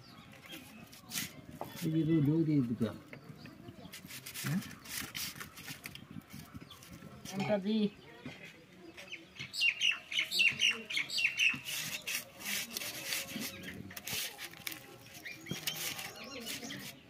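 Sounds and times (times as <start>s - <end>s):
bird chirping: 0.0s - 14.0s, 14.6s - 17.0s
hands rubbing fish: 3.9s - 7.0s, 11.4s - 17.0s.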